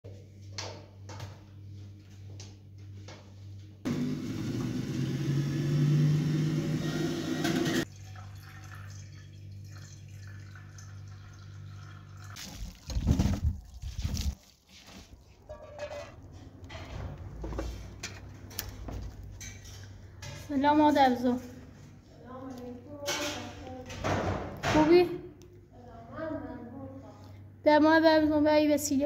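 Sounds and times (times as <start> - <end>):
water pouring: 7.8 - 14.2.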